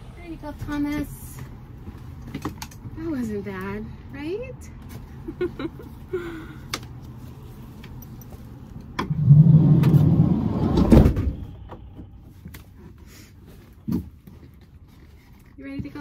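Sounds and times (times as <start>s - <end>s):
sliding door rolling on track: 9.1s - 11.4s
door shutting with thud: 10.6s - 11.5s.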